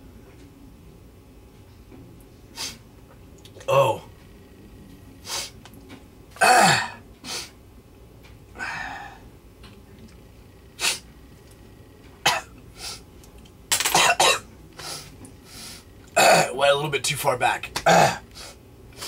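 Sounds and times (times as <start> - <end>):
man coughing and sneezing: 6.4 - 7.0, 12.3 - 12.5, 13.8 - 14.4, 16.2 - 16.6, 17.8 - 18.2.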